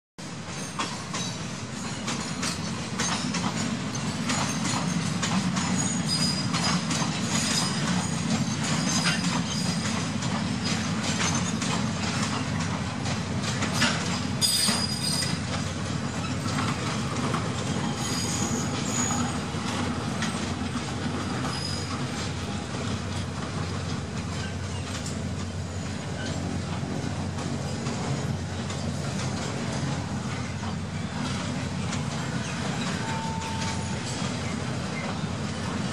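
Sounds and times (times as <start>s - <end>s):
freight wagons rumbling: 0.2s - 35.9s
wheel squeals: 0.6s - 12.7s, 13.7s - 22.6s, 24.2s - 26.8s, 30.3s - 35.4s.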